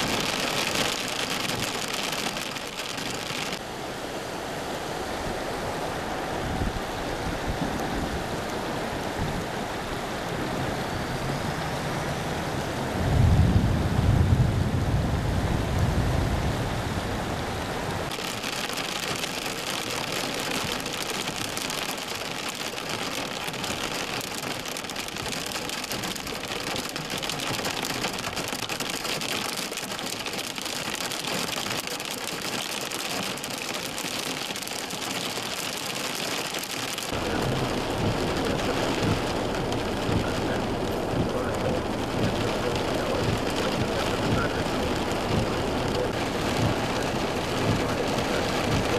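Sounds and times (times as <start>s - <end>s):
water splashing: 0.0s - 3.6s, 18.1s - 48.9s
car engine in floodwater: 0.0s - 48.9s
heavy rain on vehicle: 0.0s - 48.9s.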